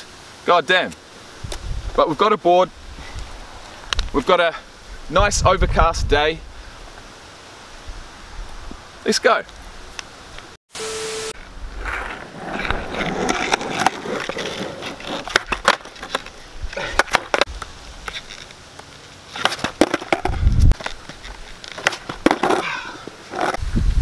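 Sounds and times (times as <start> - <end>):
skateboard scuffing on asphalt: 11.7 - 23.8
skateboard clacks and knocks: 19.4 - 20.9.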